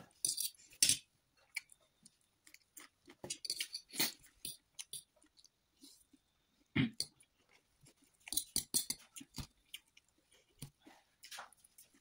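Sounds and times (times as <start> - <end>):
wet chewing and mouth clicks: 7.0 - 12.0.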